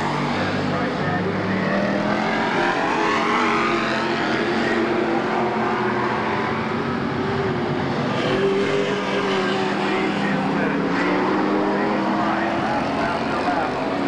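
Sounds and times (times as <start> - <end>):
race car engines passing: 0.0 - 14.0.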